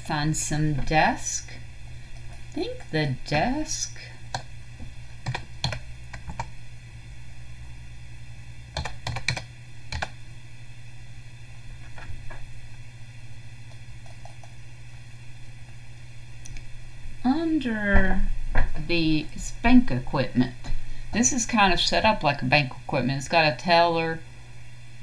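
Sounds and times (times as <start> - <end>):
computer keyboard typing: 5.2 - 6.5, 8.7 - 10.2, 13.7 - 14.6.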